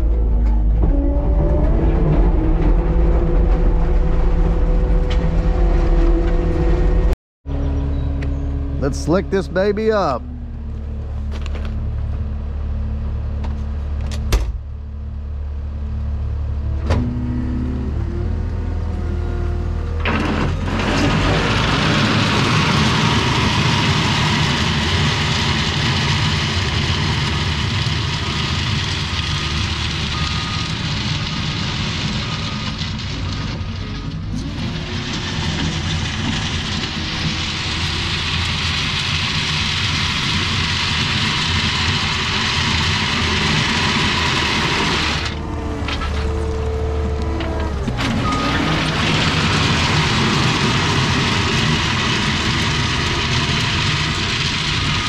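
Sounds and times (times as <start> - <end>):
hydraulics whine: 0.0 - 55.0
engine revving: 16.3 - 33.4, 34.2 - 55.0.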